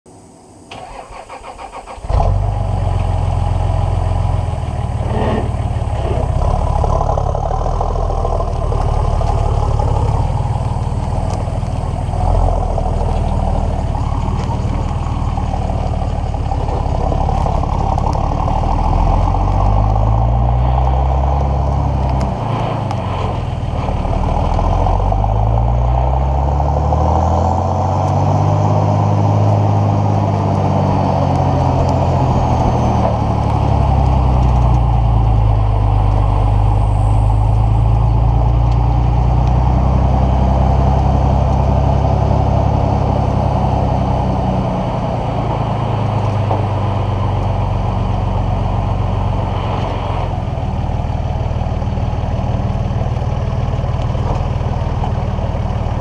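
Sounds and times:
diesel engine running: 0.1s - 56.0s
starter motor cranking: 0.7s - 2.2s.

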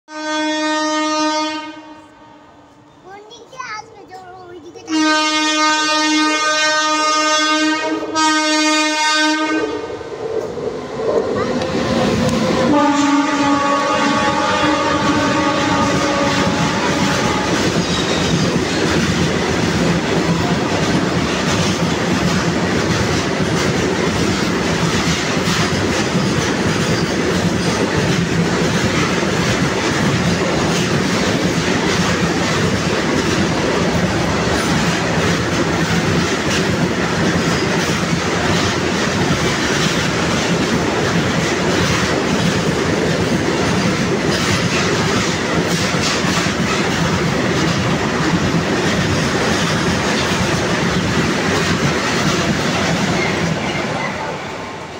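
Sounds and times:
train horn: 0.1s - 2.5s, 4.9s - 10.0s, 12.6s - 17.8s
freight train wheels rumbling: 0.1s - 54.9s
clickety-clack over rail joints: 10.3s - 54.5s.

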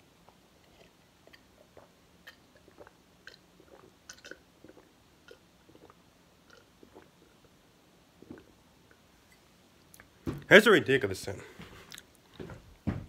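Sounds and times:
person gulping juice: 0.2s - 9.0s.

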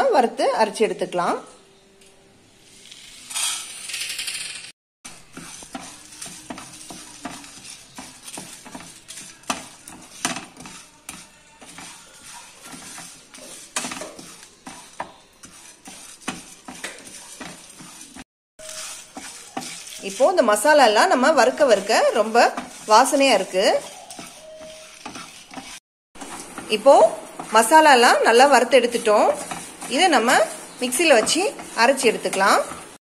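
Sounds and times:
spices rattling into a pan: 3.4s - 26.6s
wooden spatula stirring spices: 5.1s - 33.0s.

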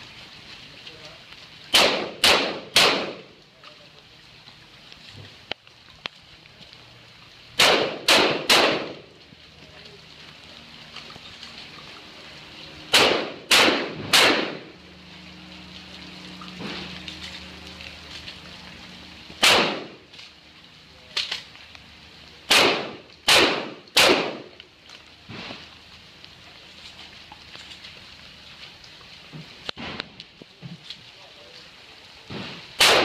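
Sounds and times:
shotgun blasts echoing: 1.7s - 3.3s, 7.6s - 9.0s, 12.9s - 14.7s, 19.4s - 20.0s, 22.5s - 24.5s, 32.3s - 33.0s.

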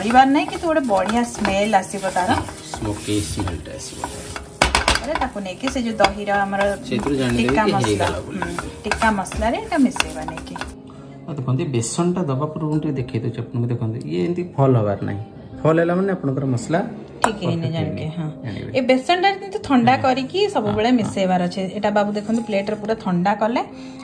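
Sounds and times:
flour sizzling in oil: 0.0s - 10.8s
spoon scraping a pan: 0.0s - 10.8s.

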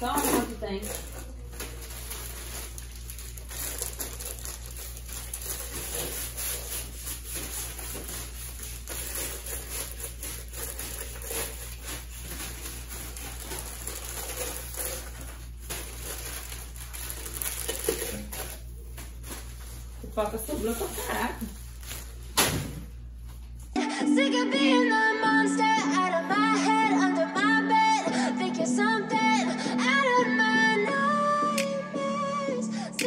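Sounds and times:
plastic wrappers crinkling: 0.0s - 22.4s.

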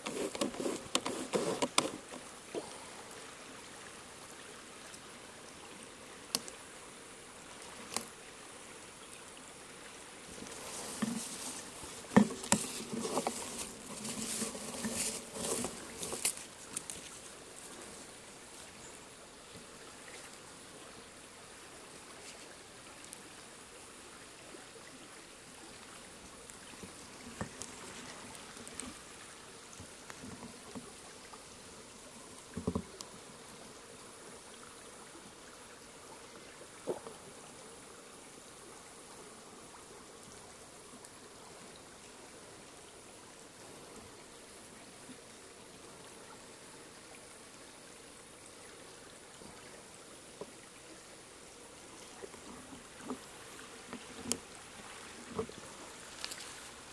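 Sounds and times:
rustling: 0.0s - 2.2s, 10.3s - 18.1s
stream trickling: 0.0s - 56.9s.

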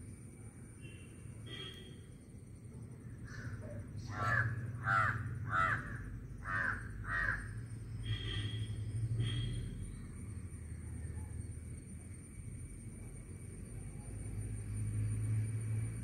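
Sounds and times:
crow cawing: 3.3s - 8.3s.

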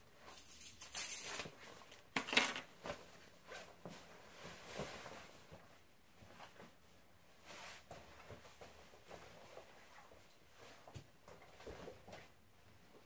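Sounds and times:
padded jacket rustling: 2.7s - 12.8s.

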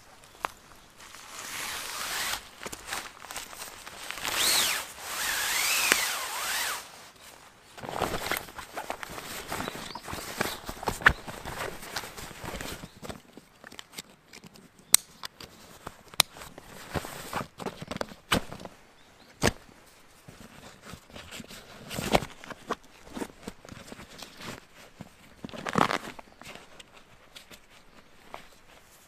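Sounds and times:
fabric rustling: 0.2s - 13.0s.

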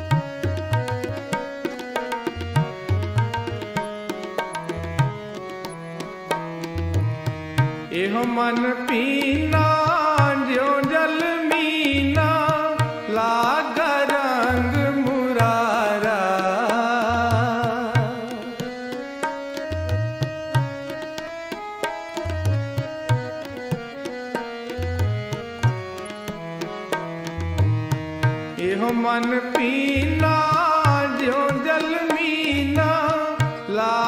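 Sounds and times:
tabla strokes: 0.0s - 7.9s
person singing devotional song: 0.0s - 34.0s.

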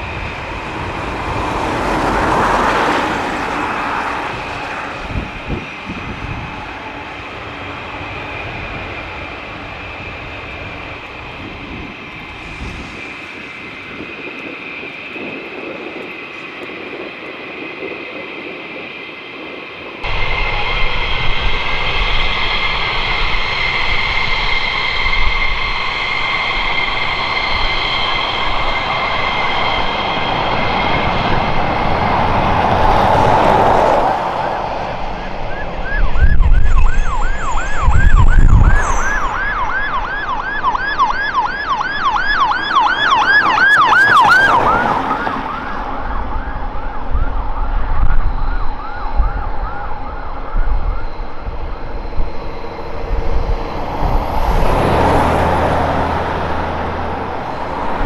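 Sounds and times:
road traffic passing: 0.0s - 17.0s, 20.0s - 47.4s, 50.0s - 58.0s
steady high whine: 0.0s - 58.0s
ambulance siren yelping: 20.0s - 58.0s
heavy vehicle passing: 51.7s - 58.0s.

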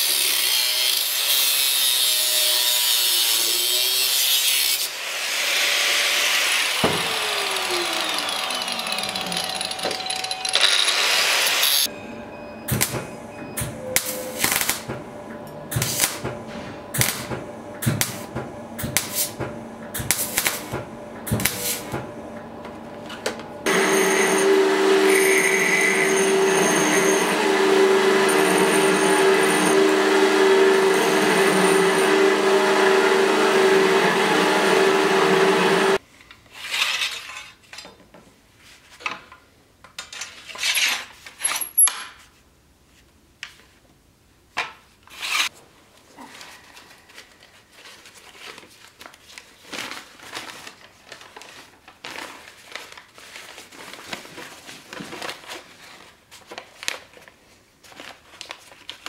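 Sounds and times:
belt grinder grinding steel: 0.0s - 11.9s, 23.7s - 36.0s.

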